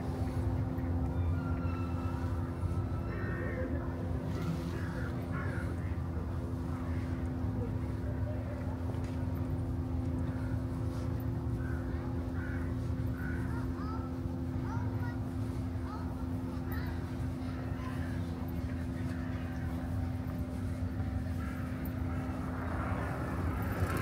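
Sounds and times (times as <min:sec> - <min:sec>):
mechanical drone with humming tones: 0:00.0 - 0:24.0.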